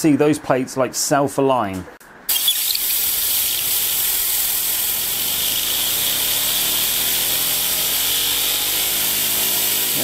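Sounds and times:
compressed air hissing: 0:02.3 - 0:10.0
turbine whirring hum: 0:02.3 - 0:10.0.

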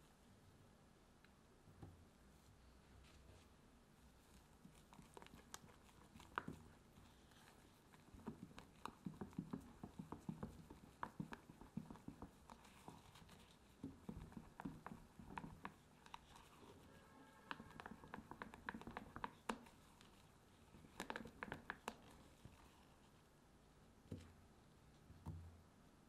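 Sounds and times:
squishy batter sounds: 0:04.0 - 0:23.3.

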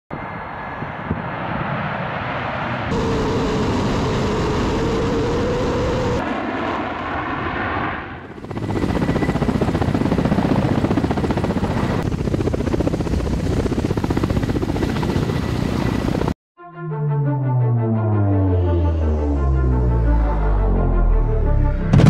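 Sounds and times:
jet engines whining: 0:00.1 - 0:16.3
helicopter rotor beat: 0:02.9 - 0:07.3, 0:08.2 - 0:16.4.

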